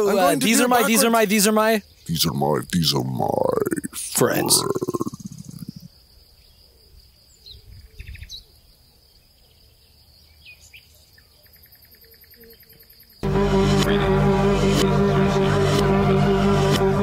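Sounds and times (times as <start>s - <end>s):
bird chirps and trills: 4.6s - 5.9s
music: 13.2s - 17.0s.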